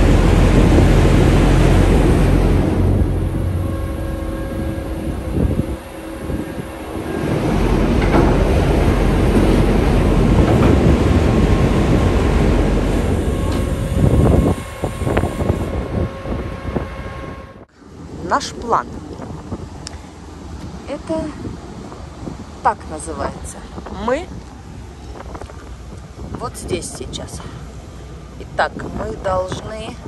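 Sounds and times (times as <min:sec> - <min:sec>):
ferry machinery rumbling and clattering: 0:00.0 - 0:17.6.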